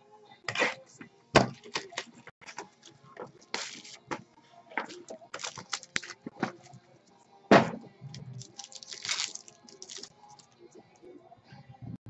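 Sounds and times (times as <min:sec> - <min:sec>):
wrapper crinkling: 0:03.5 - 0:04.0, 0:04.9 - 0:06.2, 0:08.3 - 0:10.4.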